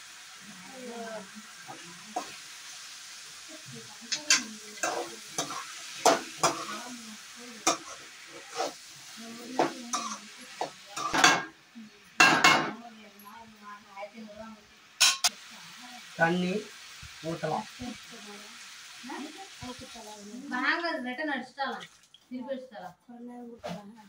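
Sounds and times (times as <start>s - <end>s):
food sizzling: 0.0s - 24.0s
metal spatula scraping a pan: 4.0s - 7.0s, 7.6s - 11.6s.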